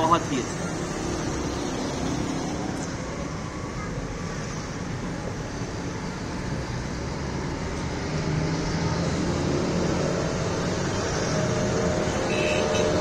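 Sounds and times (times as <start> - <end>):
street traffic noise: 0.0 - 13.0.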